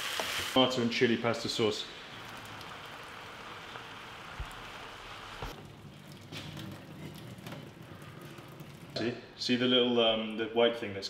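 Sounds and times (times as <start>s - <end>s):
vegetables sizzling in a frying pan: 0.0s - 5.5s
hot water draining into a sink: 0.9s - 9.9s.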